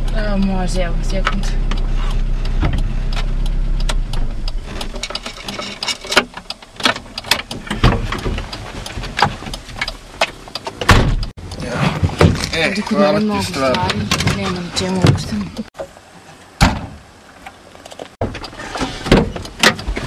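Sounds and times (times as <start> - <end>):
car engine idling: 0.0 - 11.6
heavy thump: 10.8 - 11.3, 16.6 - 17.0.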